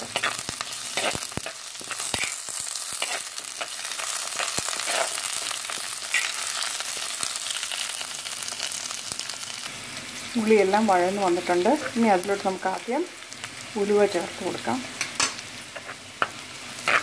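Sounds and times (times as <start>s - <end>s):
vegetables sizzling in oil: 0.0s - 17.0s.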